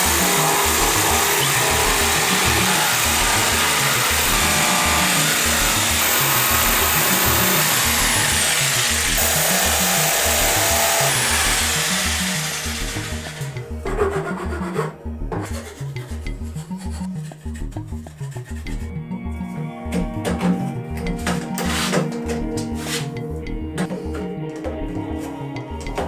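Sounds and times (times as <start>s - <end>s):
electric jigsaw cutting plywood: 0.0s - 13.8s
background music with steady beat: 0.0s - 26.0s.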